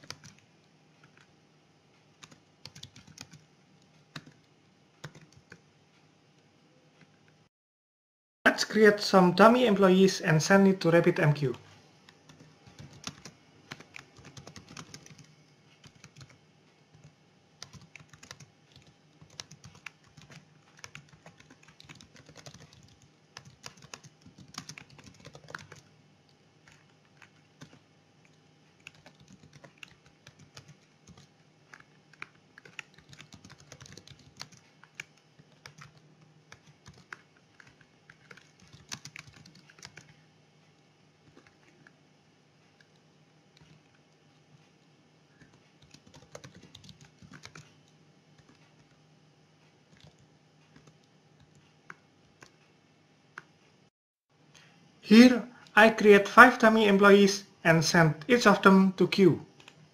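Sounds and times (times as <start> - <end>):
computer keyboard typing: 0.0 - 1.3, 2.1 - 5.7, 12.0 - 25.9, 26.6 - 40.2, 41.2 - 42.0, 43.6 - 44.0, 45.4 - 49.0, 49.9 - 52.6, 59.5 - 59.9.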